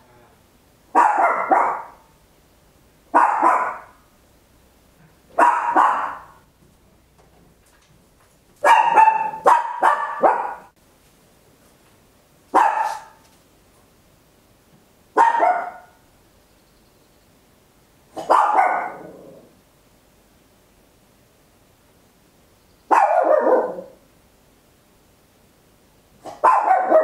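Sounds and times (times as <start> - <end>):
small dog barking: 0.9 - 2.2, 3.1 - 4.1, 5.3 - 6.4, 8.6 - 10.8, 12.5 - 13.2, 15.1 - 16.0, 18.1 - 19.4, 22.9 - 24.0, 26.2 - 27.0.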